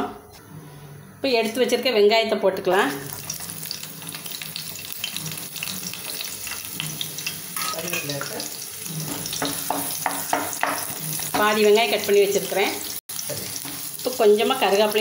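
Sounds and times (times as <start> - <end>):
onion sizzling in hot oil: 2.7 - 15.0
wooden spatula scraping a pan: 8.8 - 11.7.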